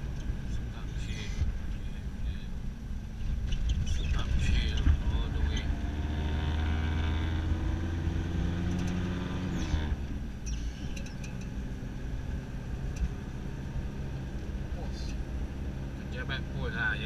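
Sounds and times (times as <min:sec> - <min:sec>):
car engine drone: 0:00.0 - 0:17.0.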